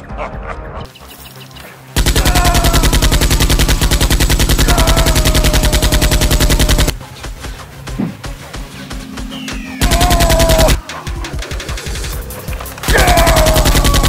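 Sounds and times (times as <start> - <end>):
machine-gun fire: 2.0 - 7.0, 9.8 - 10.8, 12.9 - 14.0.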